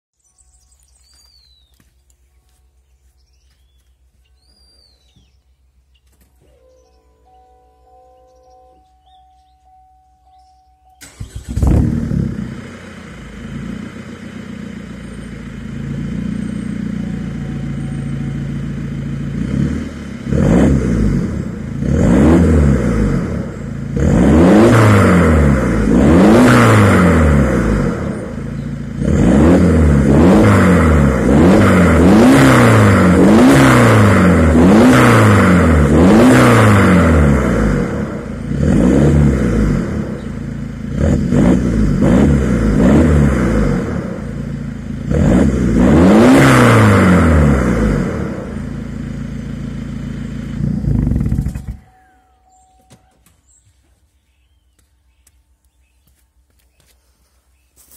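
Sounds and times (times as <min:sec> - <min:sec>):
diesel engine idling and revving: 0:08.4 - 0:53.6.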